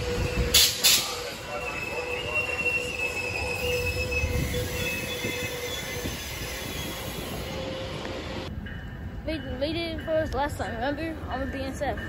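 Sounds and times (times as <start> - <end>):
high-pitched wheel squeals: 0.0 - 8.0
train wheels rumbling on rails: 0.0 - 12.0.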